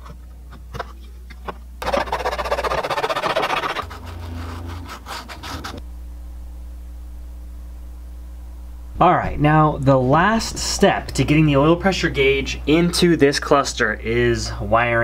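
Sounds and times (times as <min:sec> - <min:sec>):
knife scraping plastic: 0:00.0 - 0:05.8
sandpaper rubbing plastic: 0:01.8 - 0:05.8.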